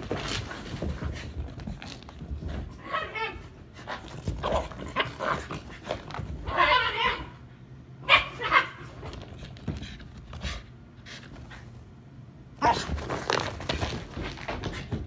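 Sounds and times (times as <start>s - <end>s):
dogs scuffling: 0.0s - 3.2s, 12.6s - 15.0s
dogs barking: 8.0s - 8.9s.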